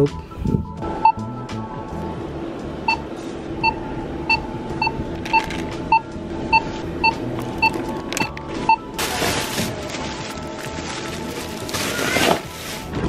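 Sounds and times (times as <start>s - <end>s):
barcode scanner beeping: 3.6s - 8.9s.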